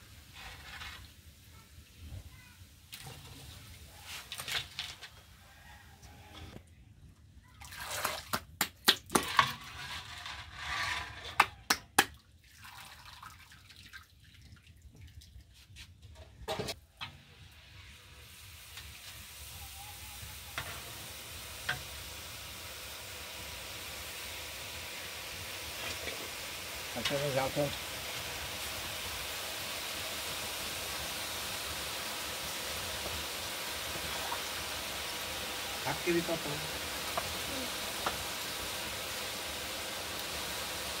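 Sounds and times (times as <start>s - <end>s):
batter sizzling in hot oil: 0.0s - 5.1s, 9.1s - 11.5s, 16.7s - 41.0s
batter beaten in metal bowl: 8.6s - 10.4s.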